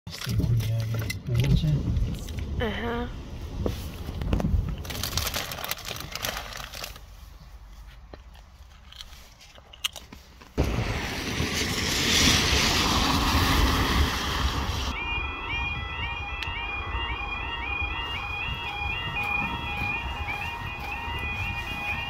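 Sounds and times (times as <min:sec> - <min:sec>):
windscreen wipers sweeping: 0:00.4 - 0:04.9, 0:10.6 - 0:22.0
van tyres hissing on wet road: 0:10.6 - 0:15.0.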